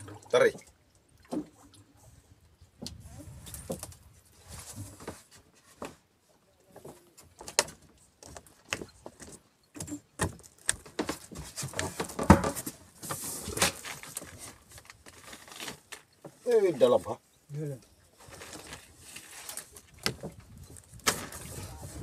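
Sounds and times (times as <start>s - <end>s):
knocks and rattles on boat deck: 7.4s - 12.8s.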